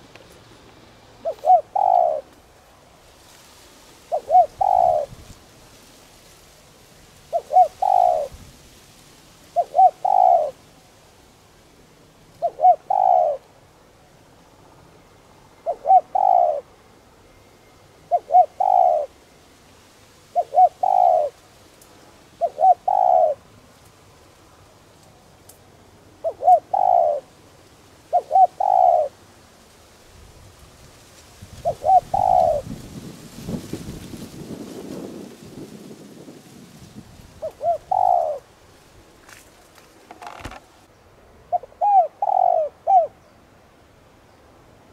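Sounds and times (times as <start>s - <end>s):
dove cooing: 1.2s - 2.4s, 4.1s - 5.3s, 7.3s - 8.4s, 9.5s - 10.6s, 12.4s - 13.5s, 15.6s - 16.7s, 18.1s - 19.2s, 20.3s - 21.4s, 22.4s - 23.5s, 26.2s - 27.4s, 28.1s - 29.2s, 31.6s - 32.8s, 37.3s - 38.5s, 41.5s - 43.3s.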